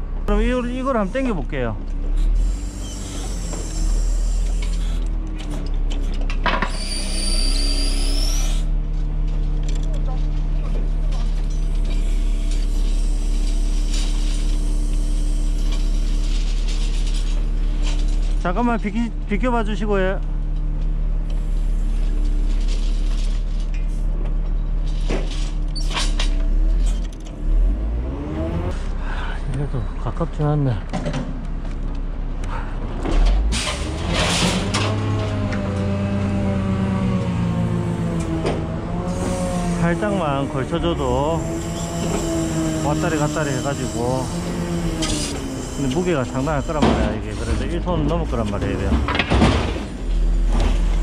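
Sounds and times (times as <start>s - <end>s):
truck engine running: 0.0s - 51.0s
high whine: 35.9s - 49.0s.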